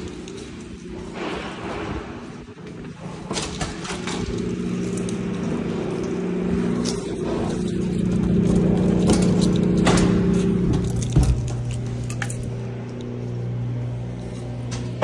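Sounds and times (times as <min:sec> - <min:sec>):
keys jangling in door lock: 0:00.0 - 0:01.1, 0:03.2 - 0:13.0
machine hum: 0:00.0 - 0:15.0.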